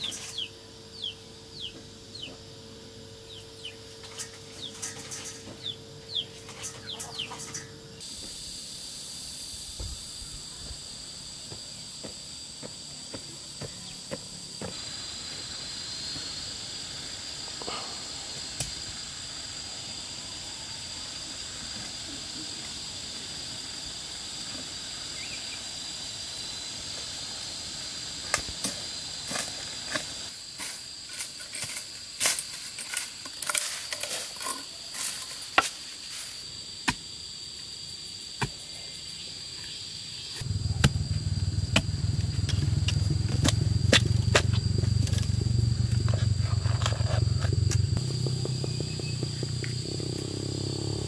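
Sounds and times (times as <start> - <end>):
insects droning: 0.0 - 51.0
digging tool striking soil: 40.4 - 41.1, 41.7 - 45.3
low rumble: 40.4 - 50.5.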